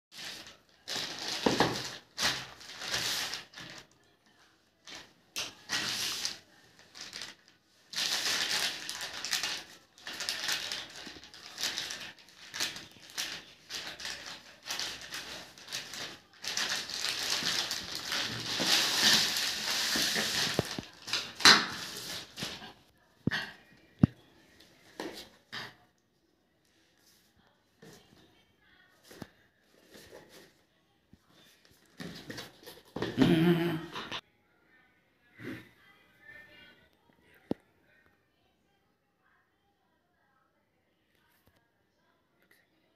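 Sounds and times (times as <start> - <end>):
plastic bag crinkling: 0.1 - 4.0, 4.8 - 22.8.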